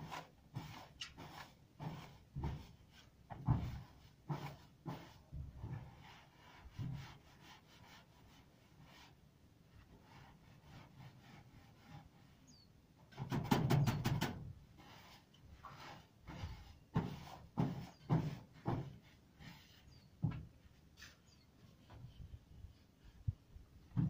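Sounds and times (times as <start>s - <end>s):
tool scraping roof tiles: 10.0s - 22.0s.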